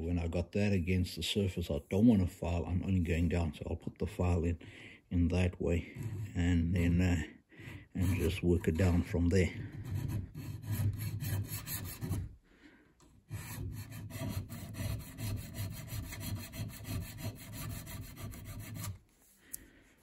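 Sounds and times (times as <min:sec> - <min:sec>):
hand file rasping on metal: 0:05.9 - 0:06.4, 0:07.8 - 0:12.4, 0:13.3 - 0:19.0.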